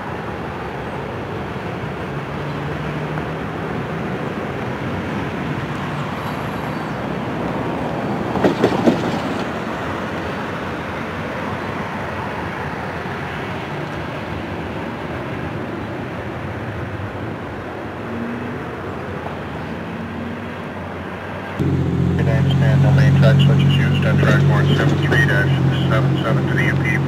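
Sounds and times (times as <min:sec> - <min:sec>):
train wheels rumbling on rails: 0:06.2 - 0:10.3.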